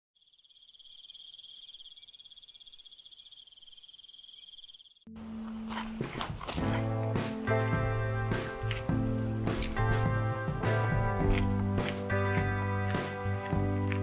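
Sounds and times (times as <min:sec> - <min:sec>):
insect trilling: 0:00.2 - 0:05.1
music with low bass note: 0:05.1 - 0:14.0.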